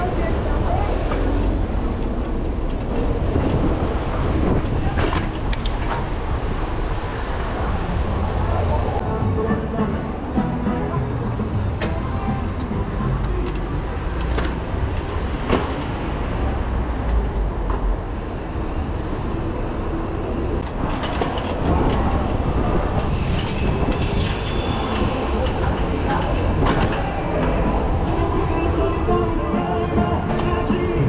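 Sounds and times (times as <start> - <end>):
wind rumbling on microphone: 0.0 - 9.2, 20.3 - 29.5
bike rattling: 10.2 - 16.6, 18.1 - 31.0.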